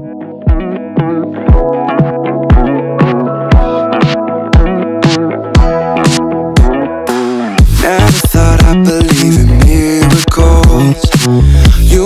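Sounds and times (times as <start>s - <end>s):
electronic music: 0.0s - 12.0s
deep kick drum: 0.5s - 0.7s, 1.5s - 1.8s, 2.5s - 2.7s, 4.6s - 4.8s, 5.6s - 5.8s, 6.6s - 6.8s, 7.6s - 11.1s.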